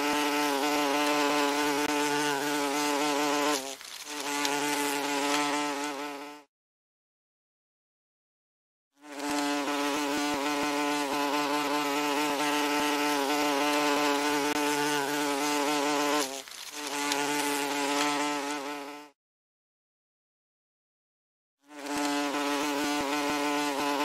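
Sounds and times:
wasp buzzing in flight: 0:00.0 - 0:06.5, 0:09.0 - 0:19.2, 0:21.7 - 0:24.0.

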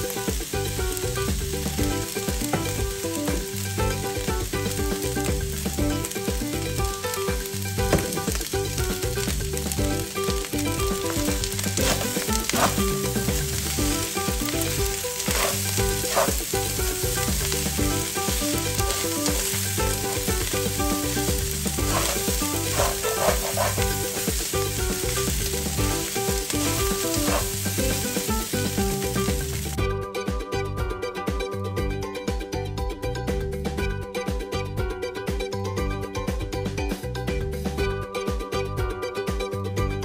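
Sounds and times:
food sizzling in a wok: 0:00.0 - 0:29.8
spatula scraping a pan: 0:11.6 - 0:13.3, 0:14.9 - 0:16.5, 0:17.4 - 0:19.7, 0:21.7 - 0:24.3, 0:26.6 - 0:28.1.

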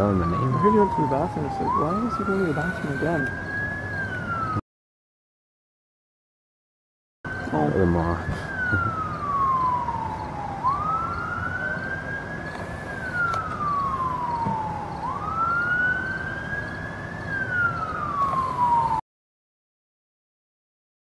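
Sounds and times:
emergency siren wailing: 0:00.0 - 0:04.6, 0:07.3 - 0:19.0.

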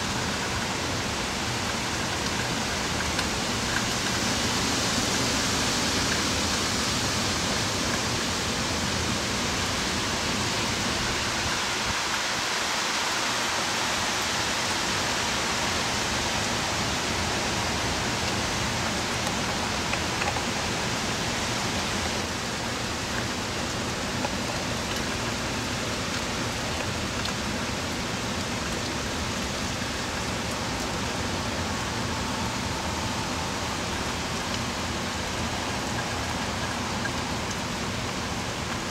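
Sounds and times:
heavy rain pouring: 0:00.0 - 0:38.9.

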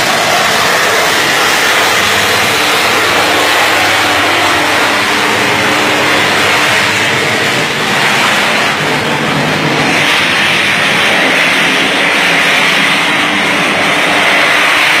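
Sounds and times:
electrical arcing hissing roar: 0:00.0 - 0:15.0.

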